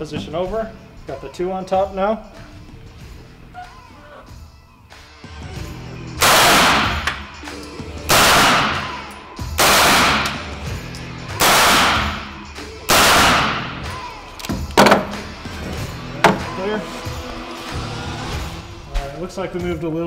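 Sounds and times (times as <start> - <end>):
suppressed gunshots with echo: 6.2 - 7.2, 8.1 - 9.0, 9.6 - 10.5, 11.4 - 12.3, 12.9 - 13.7.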